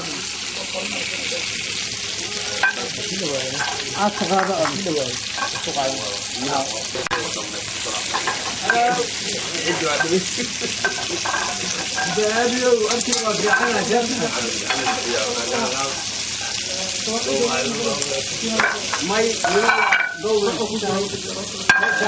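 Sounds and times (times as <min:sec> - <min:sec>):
fish sizzling in hot oil: 0:00.0 - 0:22.0
metal tongs clicking on pan: 0:12.9 - 0:13.3.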